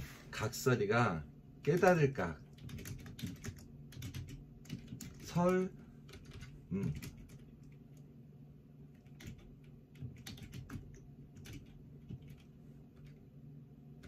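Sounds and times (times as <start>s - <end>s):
typing on computer keyboard: 1.6s - 8.0s, 8.9s - 13.2s.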